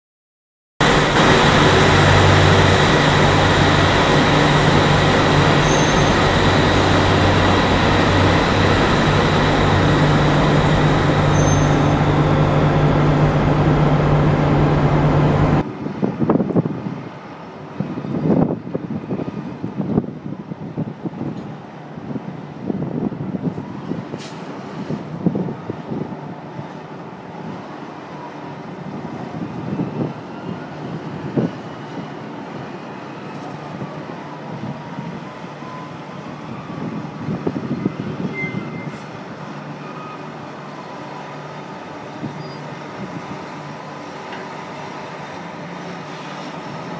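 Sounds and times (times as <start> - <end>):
diesel engine running: 0.8 - 15.6
irregular rumbles: 1.2 - 15.6.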